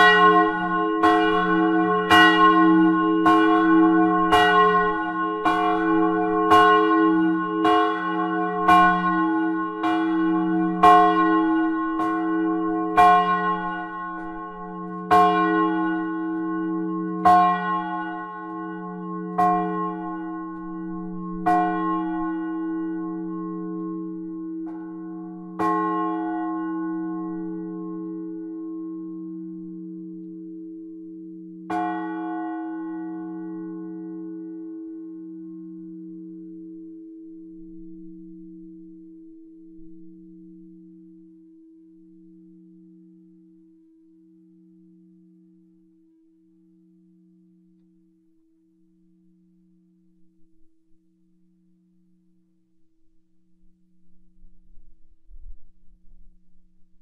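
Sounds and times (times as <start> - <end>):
church bells ringing: 0.0 - 41.4.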